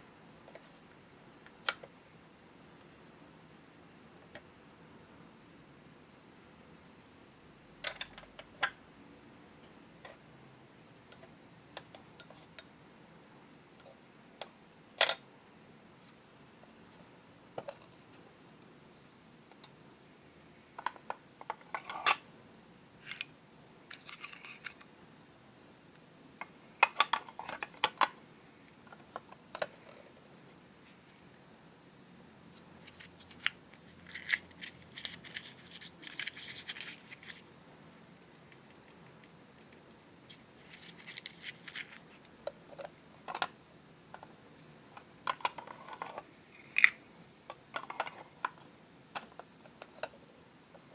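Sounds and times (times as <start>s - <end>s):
faint steady hiss: 0.0s - 50.9s
toy fridge door opening and shutting: 7.8s - 8.8s, 15.0s - 15.2s.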